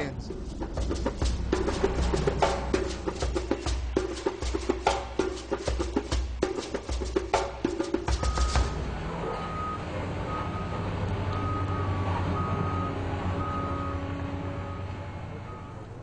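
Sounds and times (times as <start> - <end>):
low engine rumble: 0.0 - 5.3, 7.5 - 16.0
reversing alarm beeping: 8.2 - 16.0.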